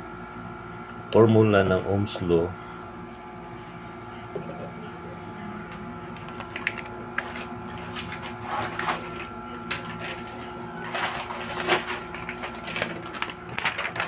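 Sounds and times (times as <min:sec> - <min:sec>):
steady background hum: 0:00.0 - 0:14.0
paper rustling and crinkling: 0:06.2 - 0:14.0.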